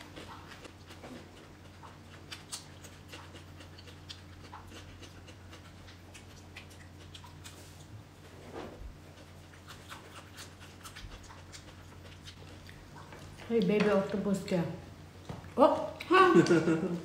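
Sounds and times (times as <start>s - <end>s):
person chewing: 0.0s - 8.2s, 8.9s - 13.5s
steady low hum: 0.0s - 17.0s.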